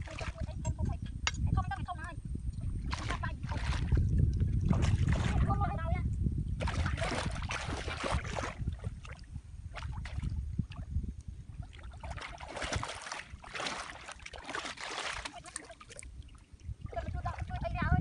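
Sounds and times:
river water splashing around legs: 2.8 - 5.6, 6.6 - 10.3, 11.6 - 17.7.

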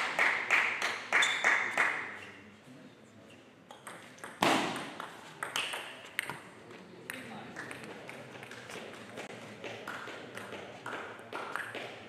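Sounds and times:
table tennis ball pinging: 3.7 - 6.5.

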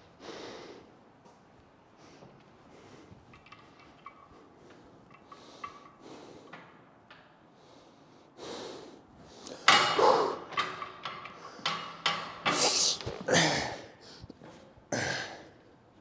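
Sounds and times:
gym equipment knocks: 9.6 - 12.6.

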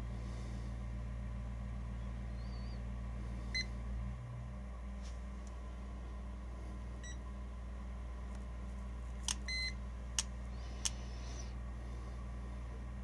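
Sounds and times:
steady low hum: 0.0 - 13.0
electronic meter beep: 9.4 - 9.8.

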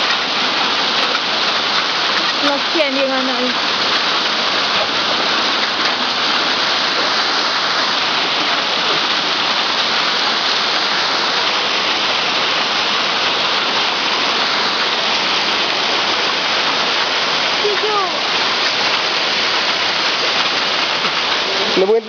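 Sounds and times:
hailstones striking pavement: 13.0 - 22.0.

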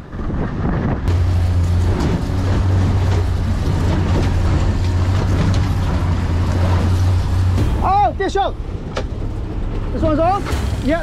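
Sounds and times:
boat engine running: 0.0 - 11.0
water rushing: 1.1 - 11.0.

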